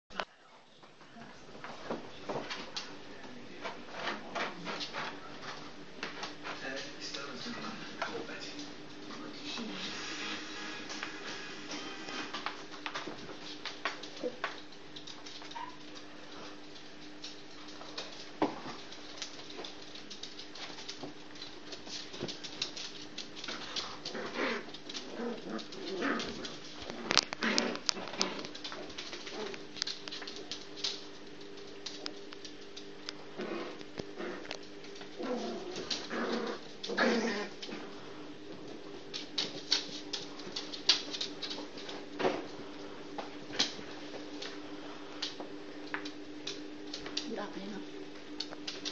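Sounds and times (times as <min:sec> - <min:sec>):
steady low hum: 0:00.1 - 0:48.9
puppy growls: 0:09.1 - 0:10.4, 0:22.2 - 0:29.9, 0:33.2 - 0:38.8
small claws scrabbling on floor: 0:12.6 - 0:47.4
puppies whining: 0:15.5 - 0:15.9.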